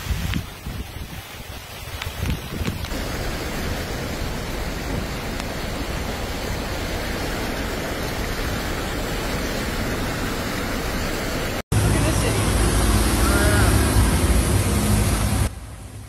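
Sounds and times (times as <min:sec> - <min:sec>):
cars driving through water: 0:00.0 - 0:16.0
rain and rushing floodwater: 0:00.0 - 0:16.0.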